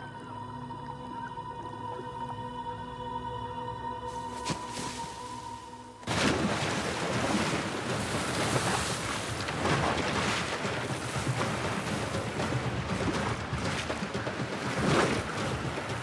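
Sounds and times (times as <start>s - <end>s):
heavy splash: 4.3s - 16.0s
water churning and splashing: 4.3s - 16.0s.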